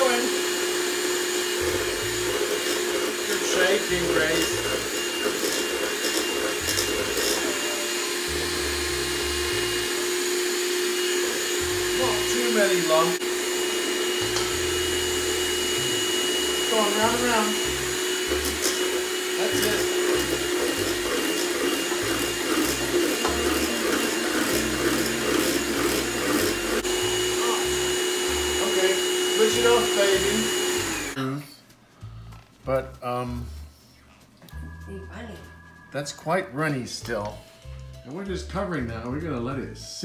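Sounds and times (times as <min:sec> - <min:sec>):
egg beater whisking batter: 0:00.0 - 0:31.2
electric hand mixer whirring: 0:00.0 - 0:31.2.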